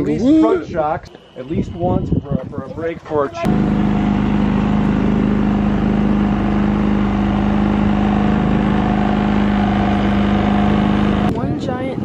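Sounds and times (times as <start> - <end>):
engine droning steadily: 3.4 - 12.0.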